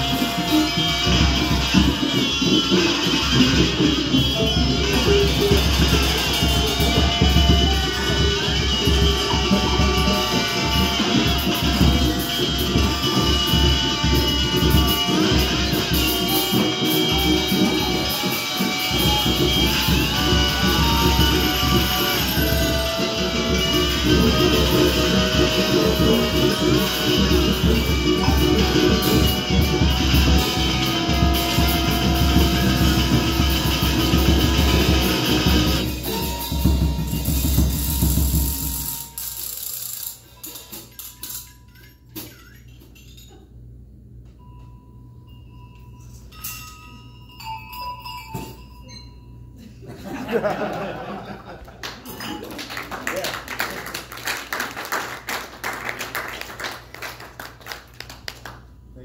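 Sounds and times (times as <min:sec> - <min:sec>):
live band music: 0:00.0 - 0:41.5.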